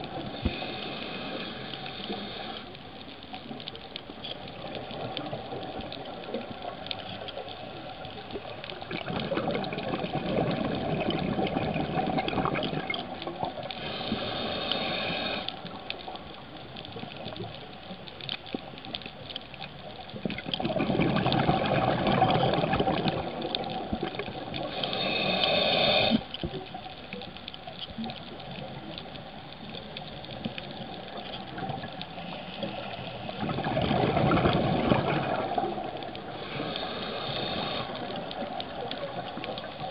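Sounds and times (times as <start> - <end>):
regulator inhalation hiss: 0.2 - 2.8, 13.8 - 15.6, 24.7 - 26.3, 36.4 - 38.1
exhaled bubbles underwater: 3.4 - 17.6, 18.2 - 39.9.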